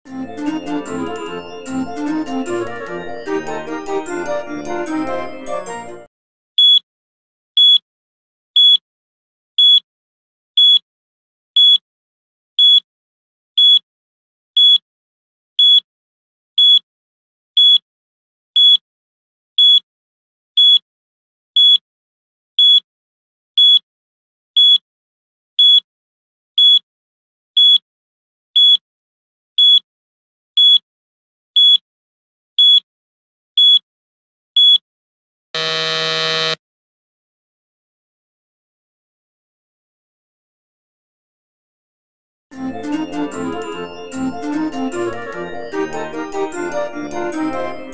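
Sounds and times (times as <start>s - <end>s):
countdown timer beeps: 6.6s - 6.8s, 7.6s - 7.8s, 8.6s - 8.8s, 9.6s - 9.8s, 10.6s - 10.8s, 11.6s - 11.8s, 12.6s - 12.8s, 13.6s - 13.8s, 14.6s - 14.8s, 15.6s - 15.8s, 16.6s - 16.8s, 17.6s - 17.8s, 18.6s - 18.8s, 19.6s - 19.8s, 20.6s - 20.8s, 21.6s - 21.8s, 22.6s - 22.8s, 23.6s - 23.8s, 24.6s - 24.8s, 25.6s - 25.8s, 26.6s - 26.8s, 27.6s - 27.8s, 28.6s - 28.8s, 29.6s - 29.8s, 30.6s - 30.8s, 31.6s - 31.8s, 32.6s - 32.8s, 33.6s - 33.8s, 34.6s - 34.8s, 35.6s - 36.6s.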